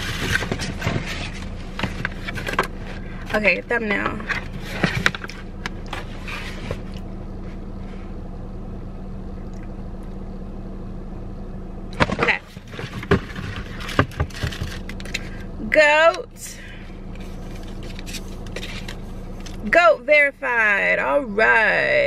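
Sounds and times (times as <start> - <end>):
box and packaging clicks and rustles: 0.0 - 3.4, 12.0 - 15.4, 17.2 - 19.6
low car cabin hum: 0.0 - 22.0.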